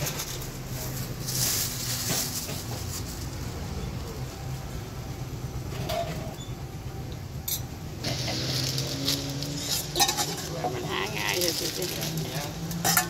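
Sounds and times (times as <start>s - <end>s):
plastic bag rustling: 0.0s - 3.7s, 8.0s - 13.0s.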